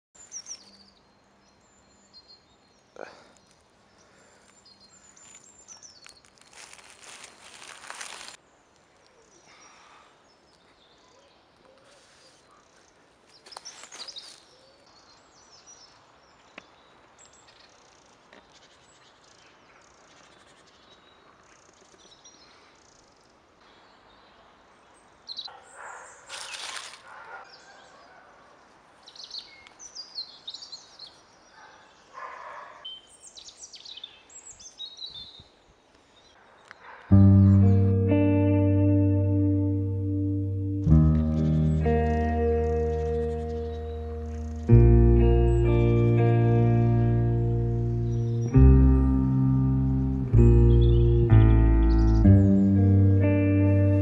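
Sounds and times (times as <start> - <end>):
birds chirping and calling: 25.4 - 28.2, 40.8 - 49.3, 50.2 - 54.0.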